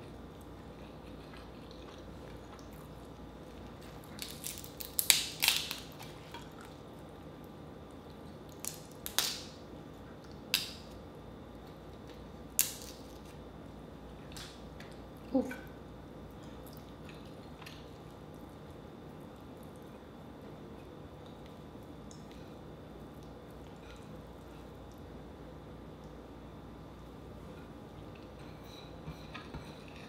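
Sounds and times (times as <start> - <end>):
faint room hum: 0.0 - 30.0
crab shell cracking: 4.1 - 6.0, 8.5 - 9.6, 12.6 - 13.3.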